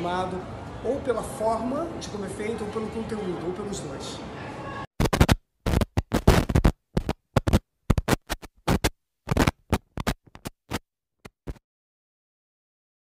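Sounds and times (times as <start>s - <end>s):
choppy noise bursts: 5.0s - 11.6s.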